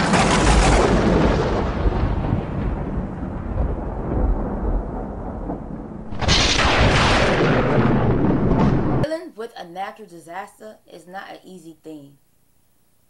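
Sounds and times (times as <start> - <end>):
loud thunderclap: 0.0 - 9.0
thunder rumbling: 0.0 - 9.0.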